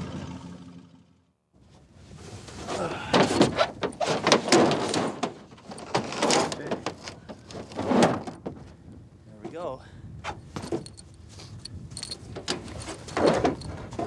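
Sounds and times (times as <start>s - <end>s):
carcass dragged thumps and scrapes: 1.6s - 8.6s.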